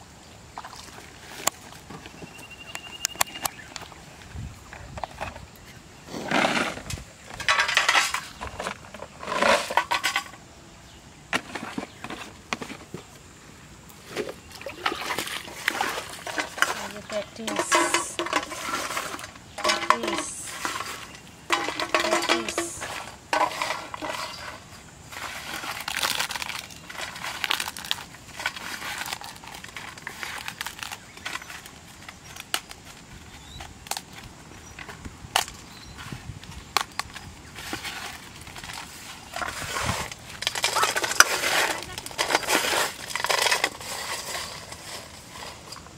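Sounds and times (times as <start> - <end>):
steel plate scraping and clinking: 6.4 - 10.4, 15.7 - 25.8
plastic bottle crinkling: 14.0 - 34.2.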